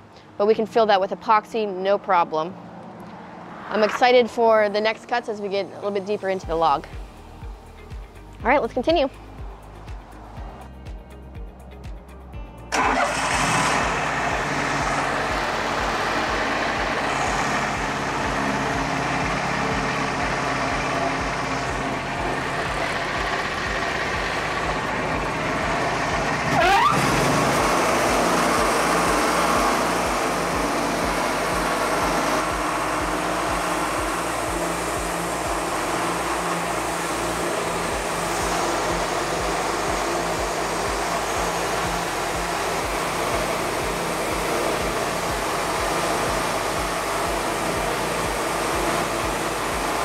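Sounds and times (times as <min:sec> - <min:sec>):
sawmill engine running: 0:12.7 - 0:50.0.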